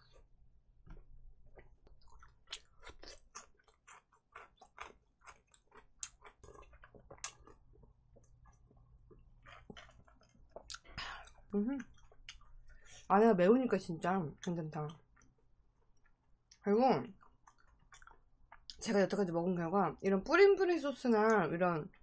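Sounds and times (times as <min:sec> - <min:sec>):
chewing crispy fried chicken: 0:01.0 - 0:13.1, 0:14.3 - 0:18.9.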